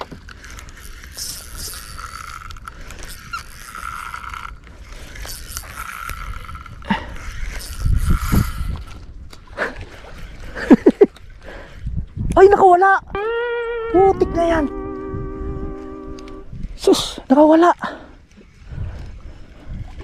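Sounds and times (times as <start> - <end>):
fishing reel whirring: 0.0 - 10.9, 13.1 - 16.8.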